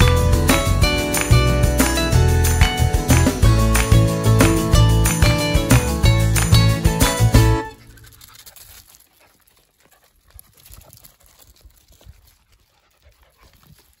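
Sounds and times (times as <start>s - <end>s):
music: 0.0s - 7.9s
dog paws running on gravel: 7.7s - 14.0s.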